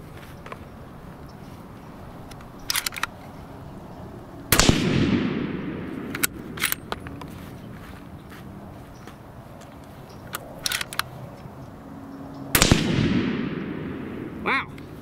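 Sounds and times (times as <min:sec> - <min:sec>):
rifle bolt metallic clacks: 0:02.3 - 0:03.2, 0:04.6 - 0:07.3, 0:09.6 - 0:11.5
rifle shot: 0:04.5 - 0:06.8, 0:12.5 - 0:14.5
light clicks: 0:09.0 - 0:11.6.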